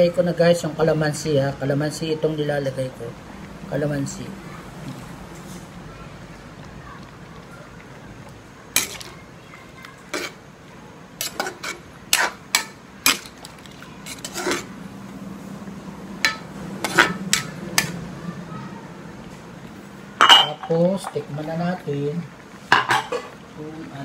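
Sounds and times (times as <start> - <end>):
metal ladle clanking in wok: 8.7 - 9.1, 11.2 - 14.7, 16.2 - 18.0, 20.2 - 21.2.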